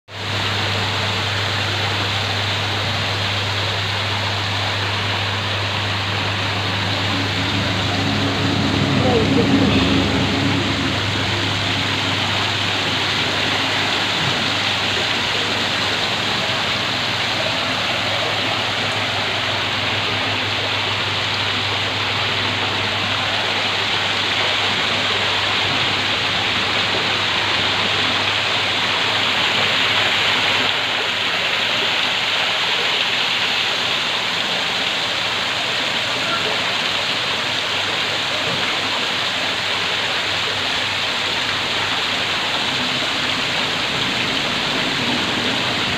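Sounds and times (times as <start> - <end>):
waterfall splashing into pond: 0.1 - 45.9.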